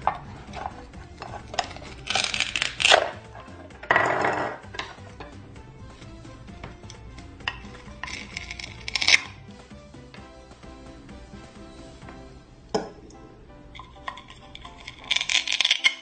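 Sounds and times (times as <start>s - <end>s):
velcro ripping: 1.5s - 3.3s, 8.0s - 9.4s, 14.7s - 16.0s
toy pieces tapping on cutting board: 14.1s - 16.0s.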